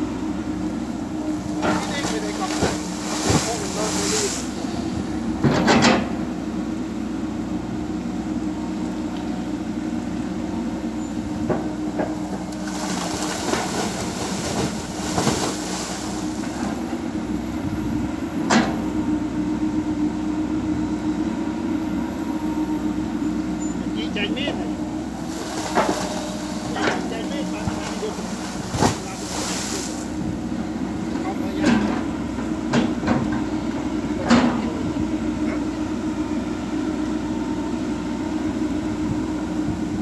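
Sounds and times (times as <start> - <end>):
excavator diesel engine running: 0.0 - 40.0
soil splashing into muddy water: 1.6 - 4.6, 12.5 - 16.8, 25.2 - 27.1, 27.7 - 30.2.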